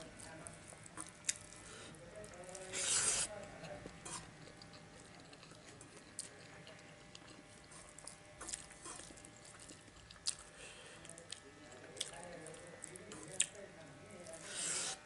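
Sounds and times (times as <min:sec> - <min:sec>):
chewing: 0:00.0 - 0:15.0
fingers mixing rice on metal plate: 0:14.2 - 0:15.0.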